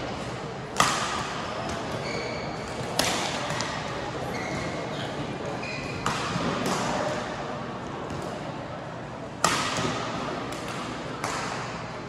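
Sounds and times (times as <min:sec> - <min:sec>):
racket hitting shuttlecock: 0:00.8 - 0:02.0, 0:02.7 - 0:03.8, 0:05.9 - 0:07.2, 0:09.4 - 0:11.8.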